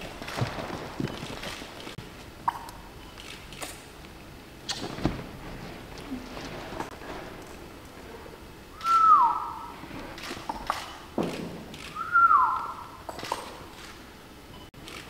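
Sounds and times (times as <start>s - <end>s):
sliding whistled notes: 8.8s - 9.7s, 12.0s - 12.8s.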